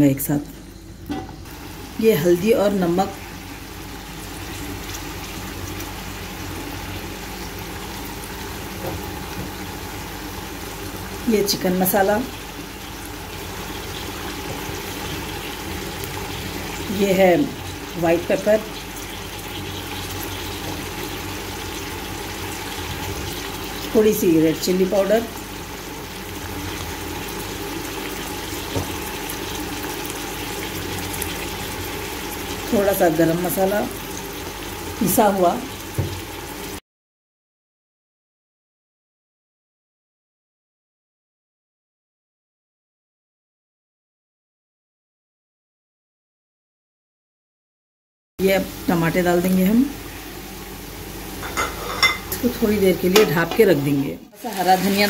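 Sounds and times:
kitchen background hiss: 0:00.0 - 0:36.8, 0:48.4 - 0:55.0
pot bubbling and sizzling: 0:00.0 - 0:36.8, 0:48.4 - 0:55.0.

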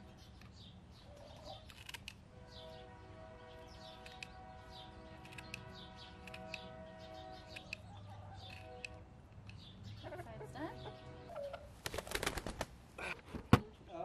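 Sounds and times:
tin snips cutting feathers: 0:04.0 - 0:04.4, 0:05.2 - 0:06.7, 0:07.5 - 0:09.6.

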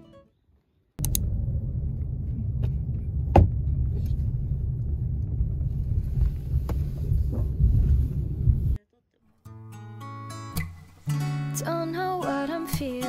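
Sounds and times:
engine and road rumble: 0:01.0 - 0:08.8.

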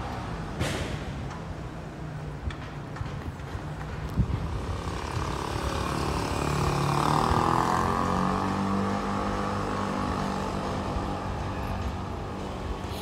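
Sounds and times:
vehicle passing by: 0:04.7 - 0:12.8.

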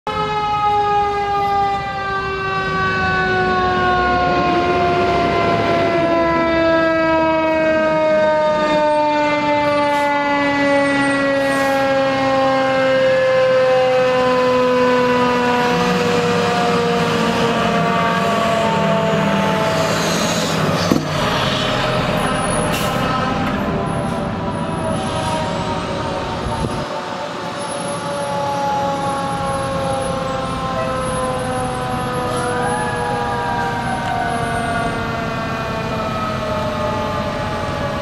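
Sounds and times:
fainter siren wail: 0:00.1 - 0:38.0
fire truck siren winding down: 0:00.1 - 0:38.0
truck engine rumble: 0:13.7 - 0:38.0.

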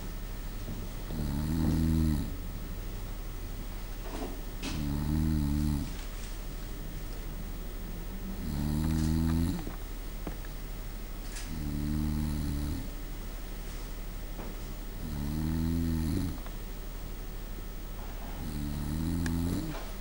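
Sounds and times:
low steady hum: 0:00.0 - 0:20.0
person snoring: 0:01.1 - 0:02.4, 0:04.6 - 0:06.0, 0:08.2 - 0:09.8, 0:11.4 - 0:12.9, 0:15.0 - 0:16.5, 0:18.4 - 0:20.0.

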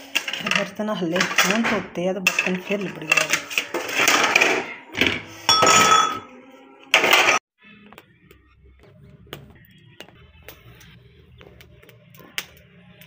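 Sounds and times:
dishes clinking and rattling: 0:00.0 - 0:06.3, 0:07.0 - 0:07.4.

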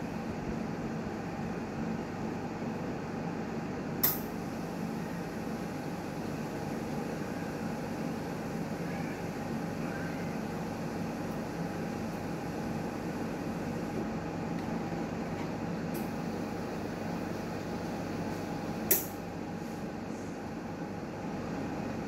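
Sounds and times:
autoclave mechanical hum: 0:00.0 - 0:22.0
sharp click: 0:04.0 - 0:04.3, 0:18.9 - 0:19.2.

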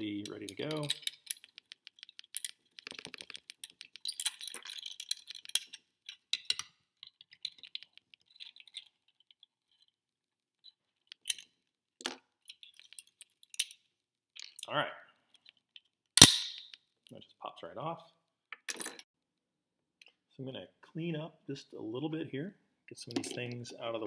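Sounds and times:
small plastic parts clicking: 0:00.2 - 0:09.9, 0:10.6 - 0:13.8.

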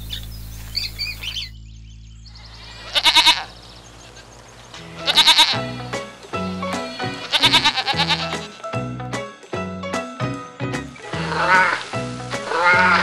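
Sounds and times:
small birds chirping: 0:00.0 - 0:07.6
goat bleating: 0:02.8 - 0:04.3, 0:04.9 - 0:05.8, 0:06.9 - 0:08.6, 0:12.5 - 0:13.0.

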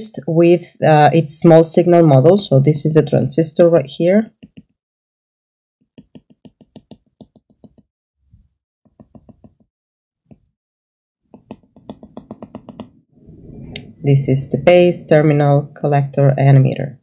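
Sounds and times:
stylus tapping on screen: 0:04.3 - 0:04.8, 0:05.9 - 0:07.9, 0:08.9 - 0:09.7, 0:10.3 - 0:10.5, 0:11.3 - 0:13.0.

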